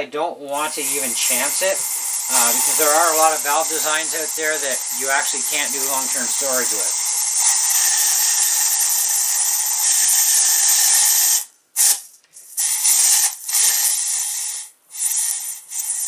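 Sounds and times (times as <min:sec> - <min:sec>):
gas hissing from cartridge: 0:00.6 - 0:16.0.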